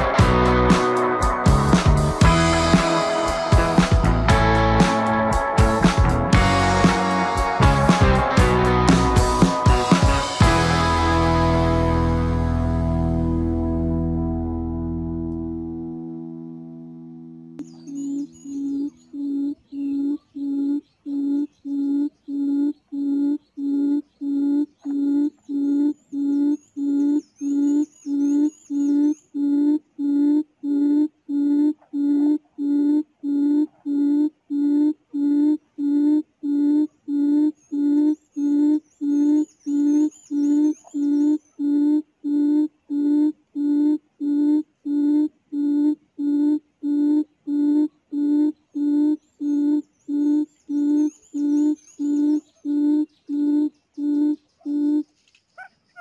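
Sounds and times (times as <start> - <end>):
quail call through speaker: 55.6 - 56.0.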